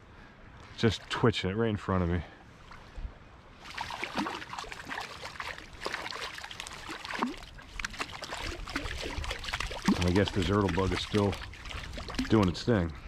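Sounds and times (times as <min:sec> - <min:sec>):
fish splashing in water: 0:03.6 - 0:12.5.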